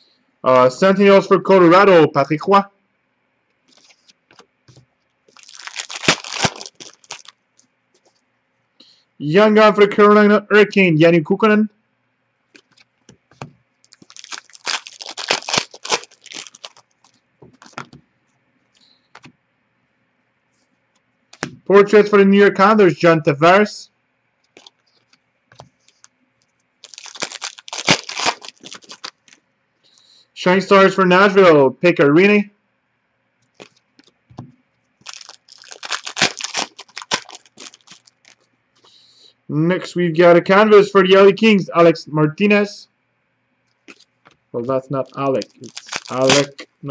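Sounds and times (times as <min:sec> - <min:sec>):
cards rustling and snapping: 0:03.7 - 0:04.5, 0:05.3 - 0:07.4, 0:12.6 - 0:18.0, 0:21.4 - 0:21.6, 0:24.5 - 0:26.1, 0:26.8 - 0:29.4, 0:35.0 - 0:38.4, 0:45.0 - 0:46.6
trading cards flicking and sliding: 0:17.5 - 0:18.0, 0:21.3 - 0:21.6.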